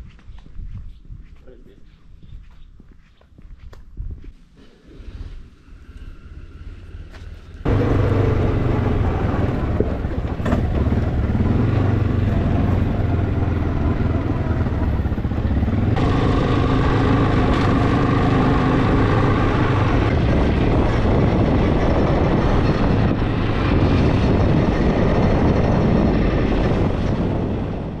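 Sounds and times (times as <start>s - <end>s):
quad bike engine running: 7.7s - 27.9s.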